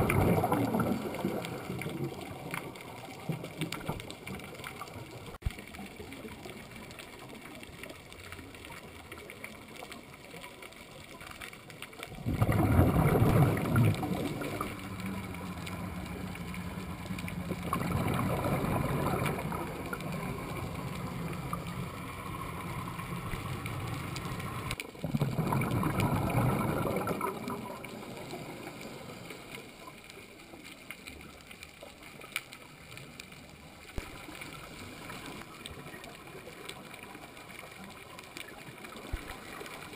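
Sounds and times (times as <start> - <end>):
diver exhaling bubbling bursts: 0.0 - 2.4, 12.1 - 15.2, 15.9 - 29.5
low underwater hiss: 0.0 - 39.9.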